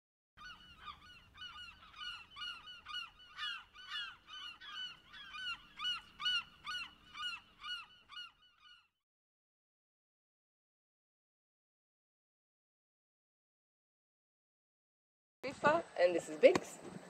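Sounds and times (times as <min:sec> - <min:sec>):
flock of birds calling: 0:00.4 - 0:08.9.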